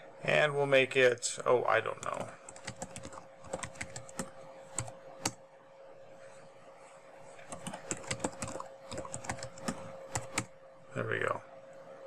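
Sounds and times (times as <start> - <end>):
keyboard typing: 2.0 - 5.4, 7.4 - 10.5.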